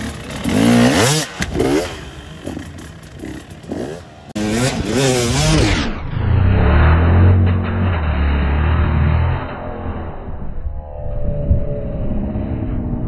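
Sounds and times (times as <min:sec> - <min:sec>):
dirt bike engine revving: 0:00.0 - 0:10.2.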